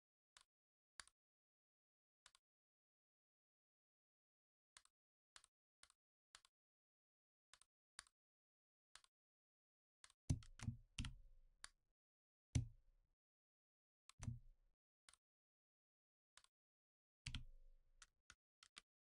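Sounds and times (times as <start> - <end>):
keyboard and mouse clicks: 10.0 - 11.8.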